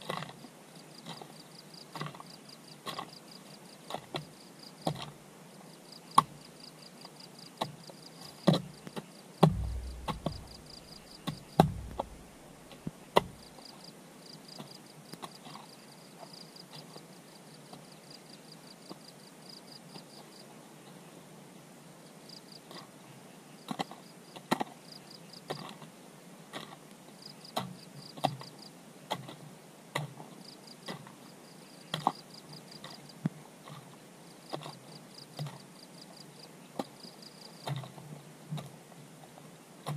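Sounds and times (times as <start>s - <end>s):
hand tool chopping: 9.4s - 12.6s, 13.2s - 13.4s
heavy thuds: 9.4s - 13.4s.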